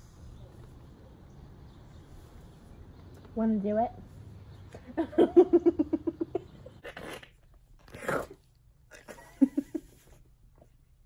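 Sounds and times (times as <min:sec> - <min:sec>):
woman laughing: 0:04.9 - 0:06.8, 0:09.0 - 0:10.2.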